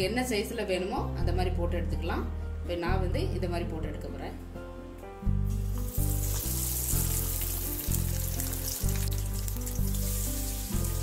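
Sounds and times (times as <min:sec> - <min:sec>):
background music with bass line: 0:04.5 - 0:11.0
batter sizzling in hot oil: 0:05.5 - 0:11.0.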